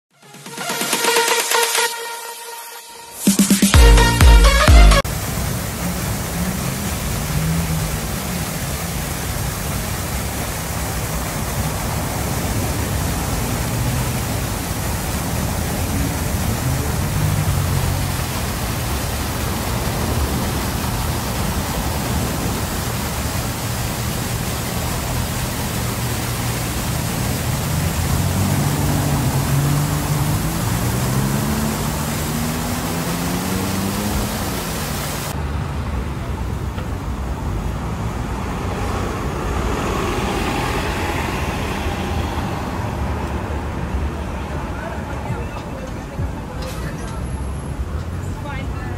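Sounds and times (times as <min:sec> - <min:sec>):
fountain water splashing: 0:05.0 - 0:48.9
vehicle engine pulling away: 0:05.1 - 0:35.7, 0:37.4 - 0:45.4.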